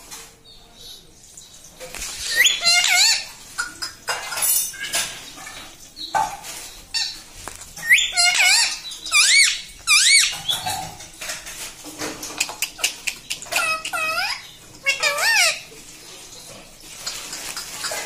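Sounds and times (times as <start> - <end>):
parakeet raspy chatter: 2.1 - 5.1, 7.8 - 10.9, 12.4 - 15.7
parakeet squeaky calls: 2.2 - 3.3, 6.9 - 7.2, 7.8 - 10.8, 13.4 - 15.7.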